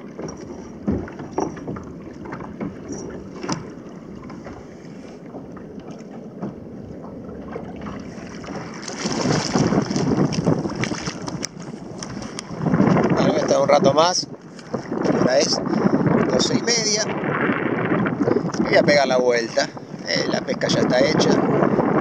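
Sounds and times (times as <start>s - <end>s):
gear knocking on plastic kayak: 0.0s - 4.7s, 8.4s - 13.4s
wind buffeting microphone: 0.0s - 22.0s.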